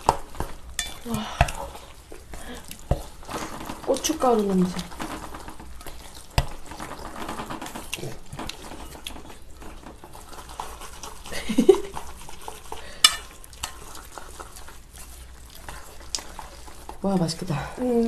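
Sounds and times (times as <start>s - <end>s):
wet squelching of mixing noodles: 0.0s - 18.0s
metal clinking against bowl: 0.8s - 1.5s
person laughing: 11.3s - 12.0s.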